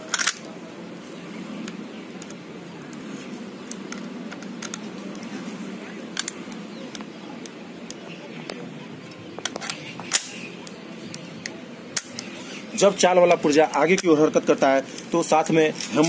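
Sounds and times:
rifle parts clicking: 0.0 - 0.5, 3.6 - 5.3, 6.2 - 7.0, 9.1 - 12.3
steady background noise: 0.0 - 16.0.

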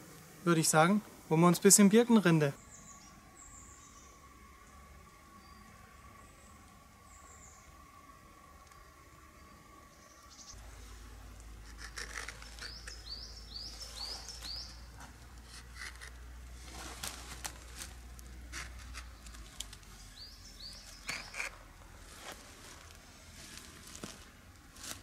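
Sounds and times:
knife scraping bark: 11.6 - 13.2, 15.4 - 16.2, 18.5 - 19.2, 21.0 - 21.6.

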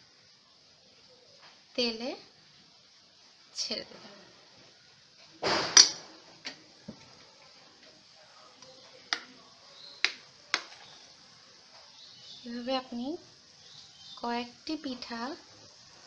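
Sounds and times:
batter sizzling in hot oil: 0.0 - 16.0.

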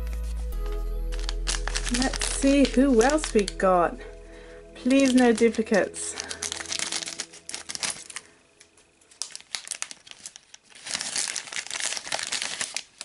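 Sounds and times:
plastic bag crinkling: 0.0 - 13.0
scissors snipping plastic bag: 0.2 - 4.1, 4.8 - 13.0.

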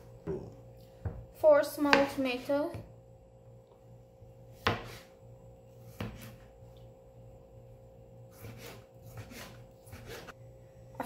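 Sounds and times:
faint steady hum: 0.0 - 11.0
knife slicing tomatoes: 8.3 - 10.4.

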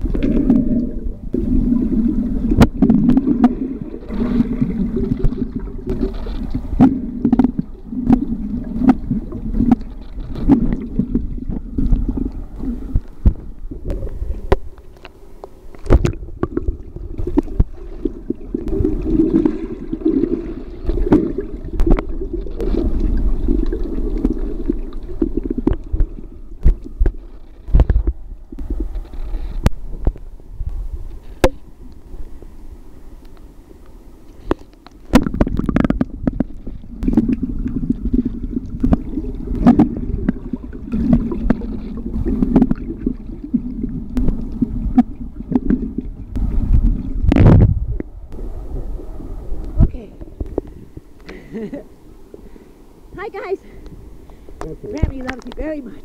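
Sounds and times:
underwater gurgling and bubbles: 0.0 - 56.0.

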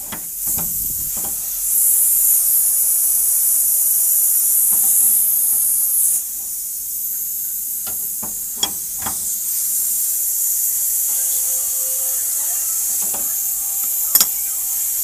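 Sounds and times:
refrigerant gas hissing: 0.0 - 15.0
metallic clicks of wrench: 7.8 - 9.3.

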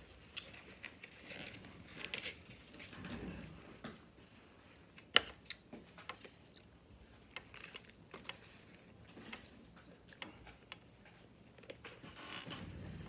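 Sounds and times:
close chewing with wet smacks: 5.4 - 11.8.

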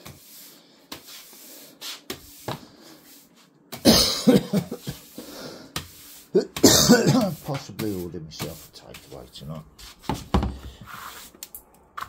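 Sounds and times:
broom on tiled floor: 0.0 - 11.4
man coughing: 3.8 - 5.1, 6.3 - 7.4.

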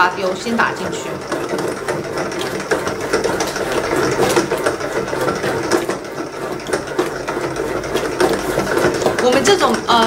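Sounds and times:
dough hook knocking: 0.0 - 10.0
stand mixer motor whirring: 0.0 - 10.0.

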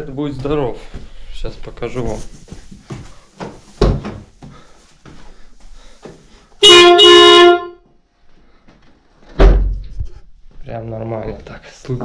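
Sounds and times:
car horn blasts: 6.6 - 7.9
sharp thump: 9.4 - 9.8.

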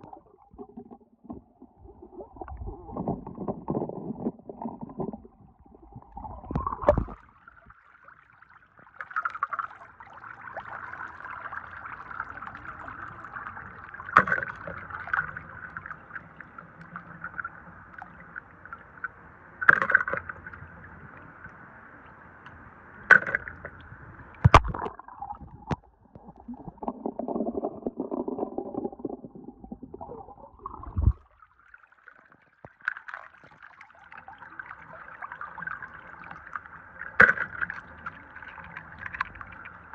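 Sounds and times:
water splashing: 0.0 - 15.9, 24.4 - 36.4.

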